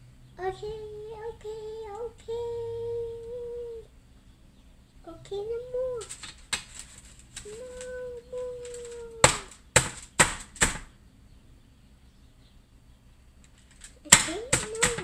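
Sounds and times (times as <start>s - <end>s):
person humming: 0.4s - 3.9s, 5.1s - 6.2s, 7.4s - 9.6s, 14.0s - 15.0s.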